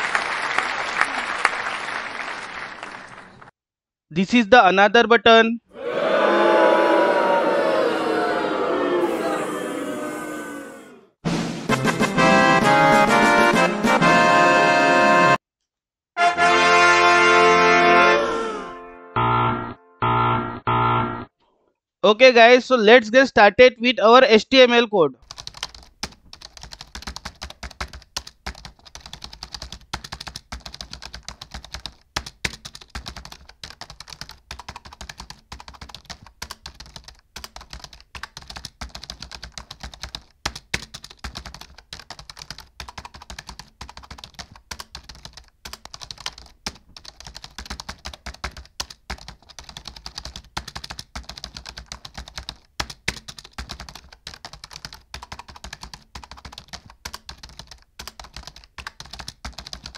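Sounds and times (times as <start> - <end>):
computer keyboard typing: 25.2 - 59.9.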